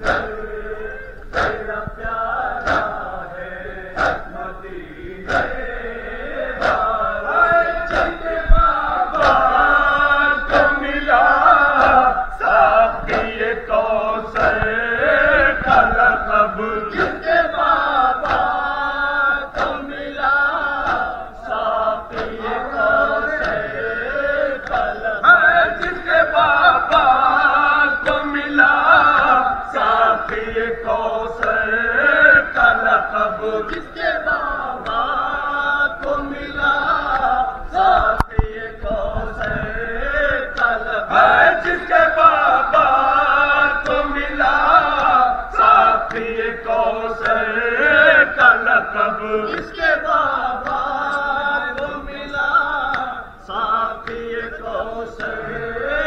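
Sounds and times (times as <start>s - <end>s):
chest-beating thumps: 0.0s - 0.6s, 1.3s - 3.1s
crowd chanting a lament: 0.0s - 56.0s.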